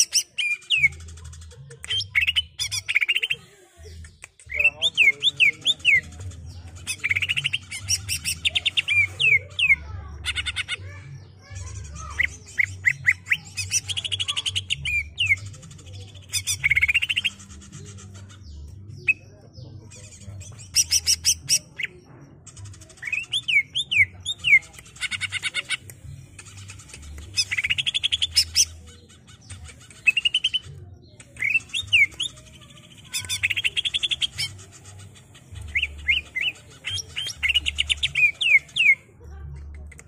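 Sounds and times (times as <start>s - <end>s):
bird singing trills and whistles: 1.8s - 3.4s, 12.0s - 19.4s, 22.9s - 39.0s.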